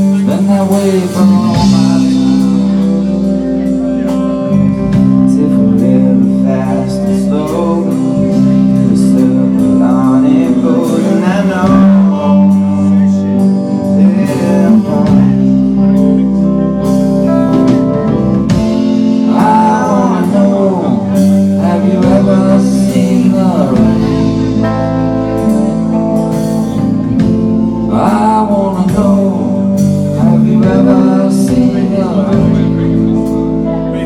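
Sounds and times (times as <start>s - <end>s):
live rock band playing: 0.0s - 34.0s
man singing: 0.0s - 34.0s.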